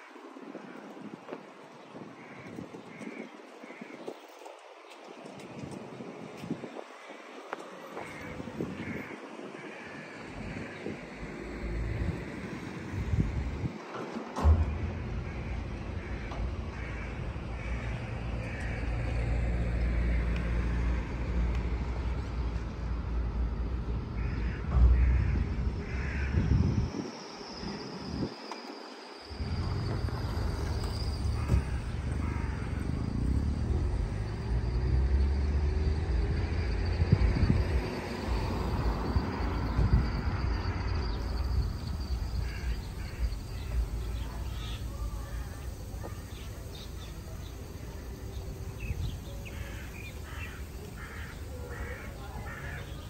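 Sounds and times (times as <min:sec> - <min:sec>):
steady low street rumble: 0:00.0 - 0:53.0
bird calls: 0:39.4 - 0:53.0.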